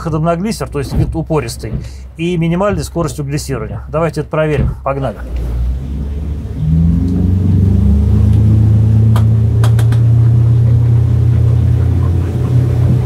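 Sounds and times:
outboard motor running hard: 0:05.2 - 0:13.0.

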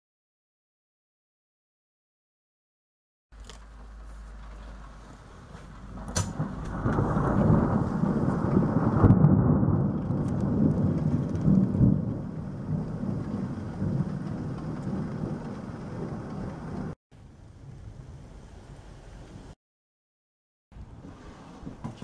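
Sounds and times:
rain: 0:03.7 - 0:19.6
thunder rumbling: 0:04.7 - 0:19.6.

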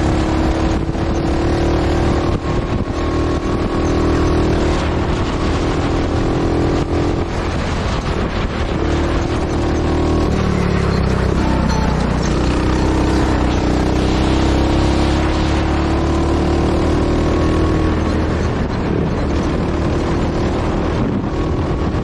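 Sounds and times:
go-kart engine running hard: 0:00.0 - 0:22.0.

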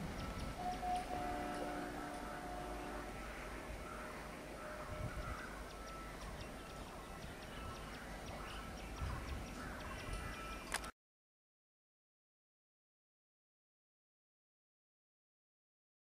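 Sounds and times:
background hum: 0:00.0 - 0:10.7
distant bird calls: 0:00.0 - 0:10.9.

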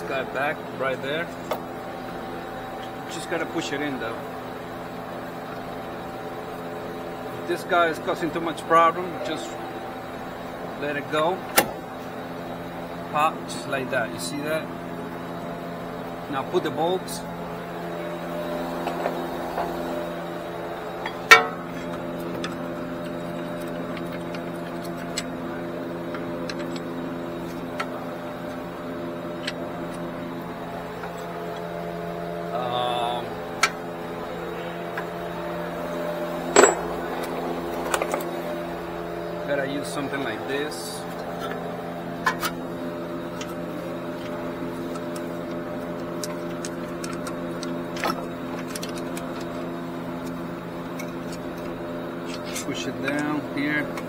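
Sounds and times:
steady background hum: 0:00.0 - 0:54.0
sharp metal clank: 0:21.0 - 0:21.8, 0:36.5 - 0:36.9.

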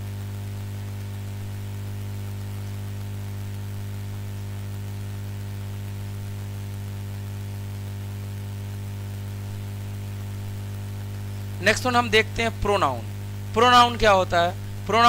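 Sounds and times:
low electrical hum: 0:00.0 - 0:15.0
background hiss: 0:05.2 - 0:15.0.

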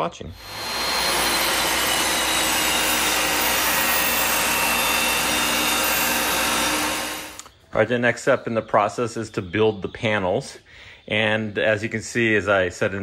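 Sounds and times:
table saw ripping a board: 0:00.4 - 0:07.5.

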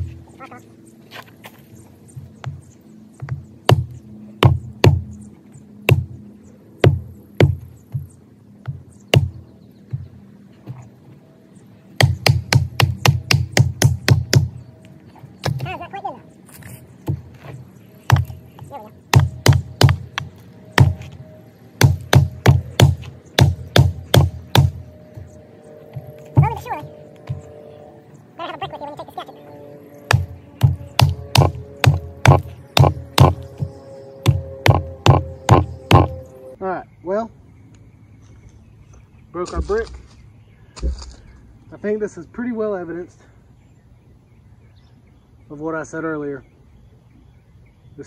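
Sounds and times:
hatchet chopping wood knocks: 0:03.2 - 0:05.0, 0:05.9 - 0:06.2, 0:06.8 - 0:10.0, 0:12.0 - 0:14.5, 0:18.1 - 0:21.0, 0:21.8 - 0:24.8, 0:30.1 - 0:33.7, 0:34.3 - 0:36.1
brick pounding hatchet into log: 0:19.1 - 0:20.0, 0:21.8 - 0:24.7.

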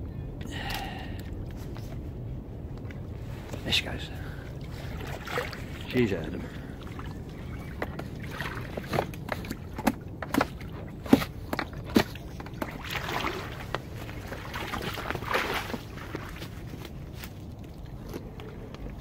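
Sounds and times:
boat knocking against bank: 0:07.7 - 0:13.1.

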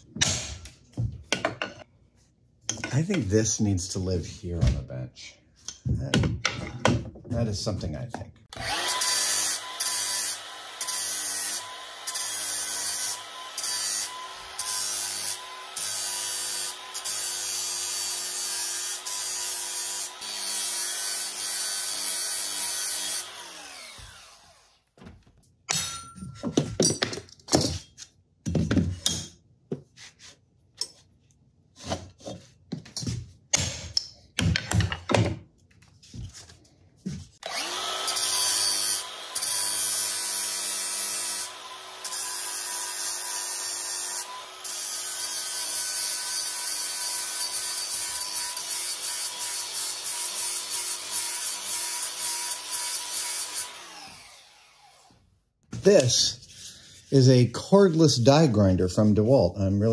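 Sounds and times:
angle grinder grinding metal: 0:08.5 - 0:24.8, 0:37.4 - 0:55.2
knocks and clatter: 0:34.4 - 0:35.5.

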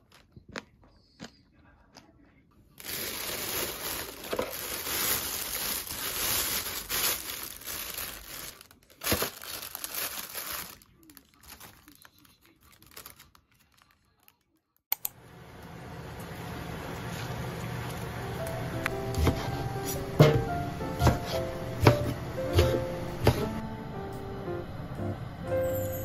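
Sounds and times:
plastic bag crinkling: 0:02.8 - 0:14.5
sharp plastic crackle: 0:02.8 - 0:14.7.

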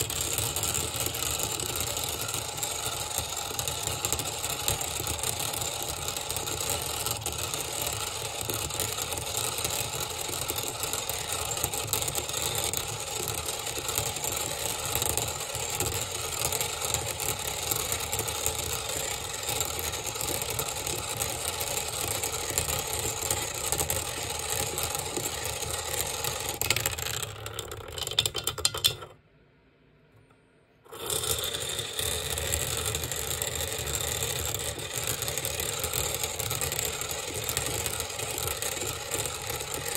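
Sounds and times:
magnetic stirrer whirring: 0:30.9 - 0:39.9.

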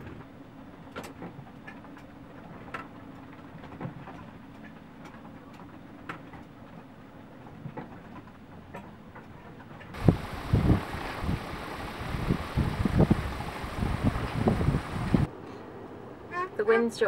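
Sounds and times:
low rush of wind: 0:09.9 - 0:17.0.

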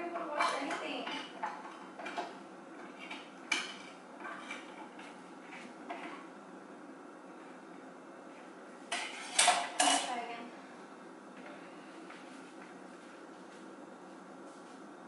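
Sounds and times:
dishes clinking in sink: 0:08.9 - 0:10.2.

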